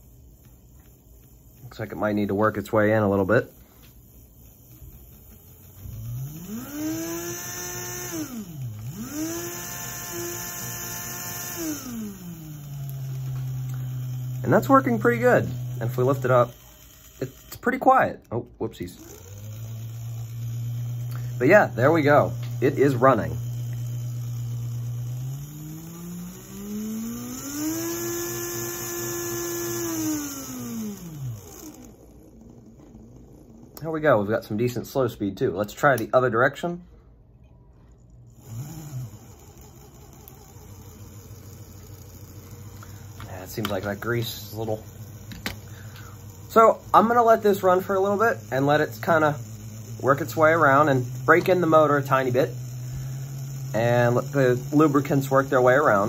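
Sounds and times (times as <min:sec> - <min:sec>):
model train motor whine: 0:00.0 - 0:34.5, 0:38.3 - 0:56.0
low hum: 0:19.0 - 0:35.1.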